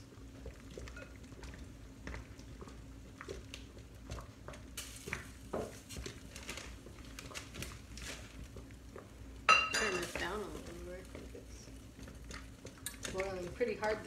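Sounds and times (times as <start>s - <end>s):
low steady hum: 0.0s - 14.0s
kitchen utensils clinking: 9.5s - 10.5s.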